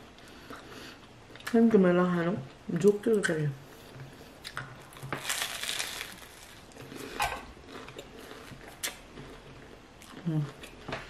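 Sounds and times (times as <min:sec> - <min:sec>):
crunchy chewing: 0:04.4 - 0:10.9.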